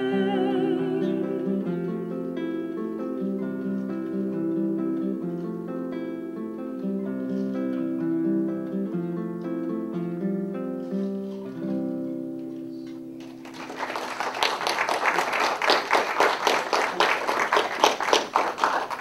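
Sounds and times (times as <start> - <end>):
acoustic guitar notes ringing: 0.0 - 13.4
audience clapping: 13.2 - 19.0.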